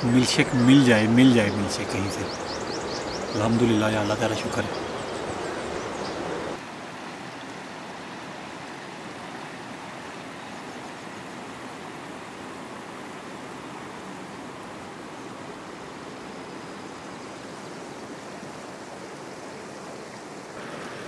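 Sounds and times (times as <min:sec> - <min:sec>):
river rushing over rocks: 0:16.9 - 0:21.0.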